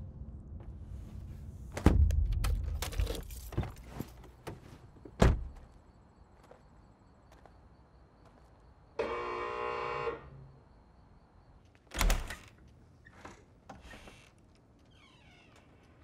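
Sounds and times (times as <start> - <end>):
door creaking open: 11.9 - 16.0.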